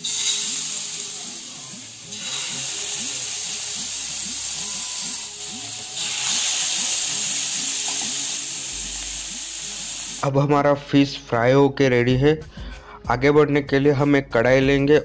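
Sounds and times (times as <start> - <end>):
fish sizzling in hot oil: 0.0 - 10.2.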